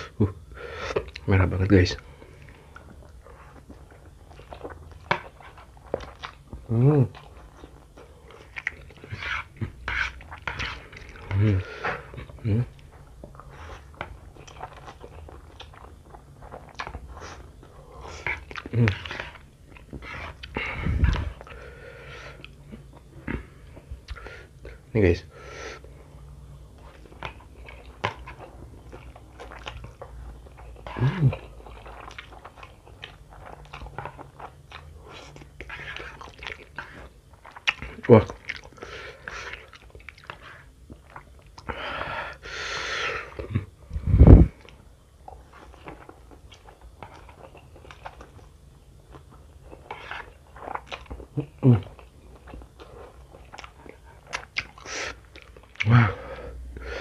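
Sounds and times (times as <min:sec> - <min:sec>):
wet chewing and slurping noodles: 0:02.0 - 0:24.8, 0:25.6 - 0:57.0.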